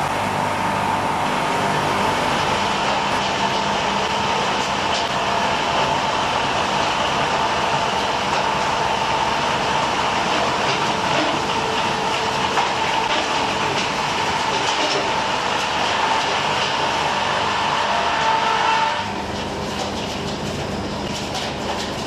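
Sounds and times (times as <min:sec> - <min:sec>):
circular saws cutting log: 0:10.0 - 0:19.1.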